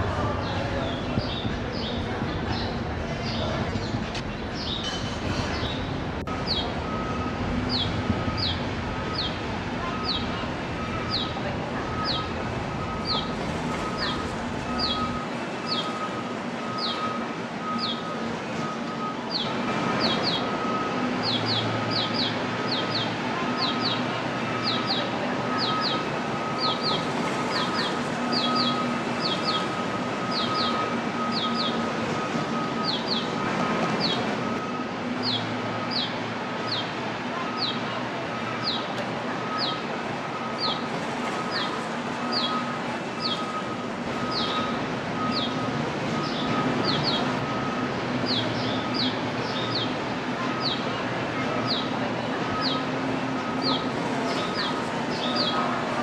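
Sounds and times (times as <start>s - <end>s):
small birds chirping: 5.6s - 7.0s, 7.7s - 9.4s, 10.0s - 16.1s, 16.7s - 18.1s, 19.3s - 31.9s, 32.6s - 37.9s, 38.6s - 45.6s, 46.2s - 51.0s, 52.6s - 55.8s.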